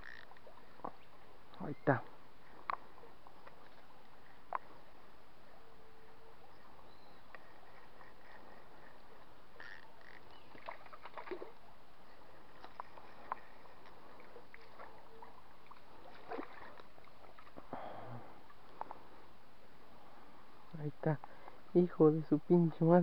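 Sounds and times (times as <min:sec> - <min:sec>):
fishing rod clicks and knocks: 0:00.0 - 0:01.6, 0:09.6 - 0:11.4
faint outdoor hiss: 0:00.0 - 0:23.0
fish splashing in water: 0:07.5 - 0:11.7, 0:12.4 - 0:17.7.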